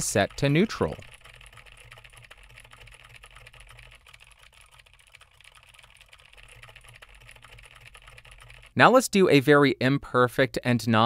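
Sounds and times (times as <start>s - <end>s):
mechanical keyboard typing: 0.0s - 8.8s.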